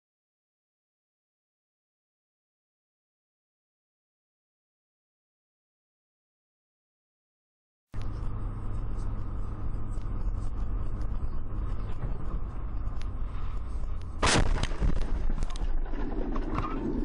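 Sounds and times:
car cabin driving rumble: 8.0 - 17.0
clicks and crackles: 14.0 - 17.0
loud impact bang: 14.2 - 16.6.

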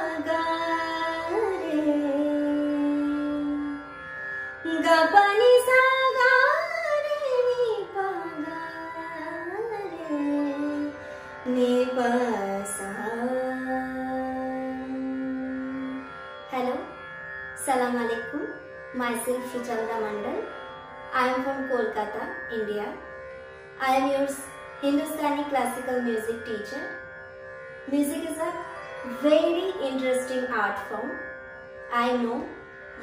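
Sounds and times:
woman singing classical vocal: 0.0 - 4.0, 4.6 - 17.0, 17.6 - 20.5, 27.9 - 31.2
steady drone: 0.0 - 33.0.

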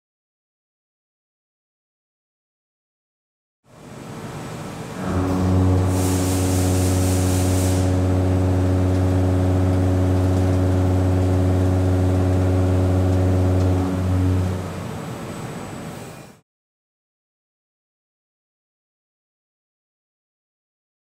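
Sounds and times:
high hiss: 4.2 - 8.8
milling cutter humming: 5.0 - 15.4.

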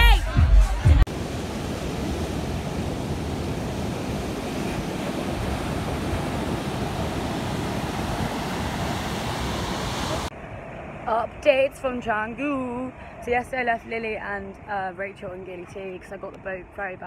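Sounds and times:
ocean waves breaking on beach: 1.1 - 11.0
wind rumbling on microphone: 1.1 - 11.0.

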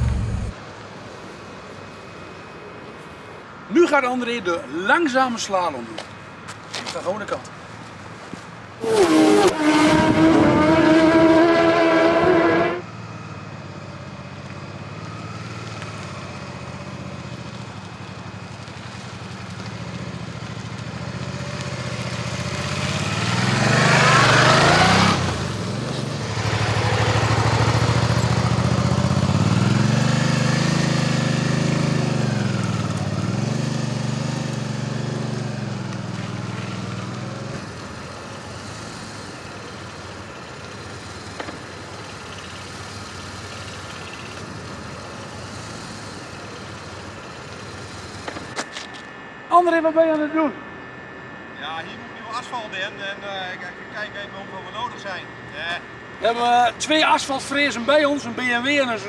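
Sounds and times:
motorcycle engine at low speed: 0.0 - 0.6, 8.8 - 52.1
racing motorcycle screaming past: 8.8 - 12.9, 21.8 - 37.6.

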